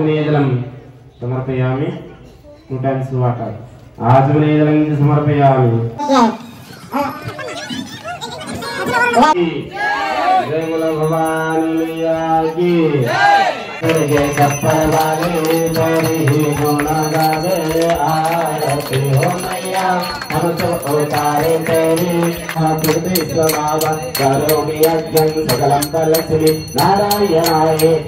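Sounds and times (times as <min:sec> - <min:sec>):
person chanting to music: 0:13.8 - 0:28.0.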